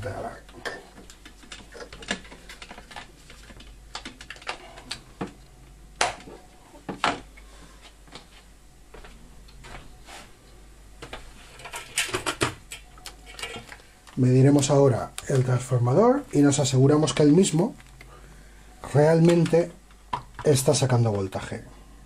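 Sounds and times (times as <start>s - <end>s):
clicks and clatter from handling cables: 0.5s - 6.3s, 11.6s - 14.2s.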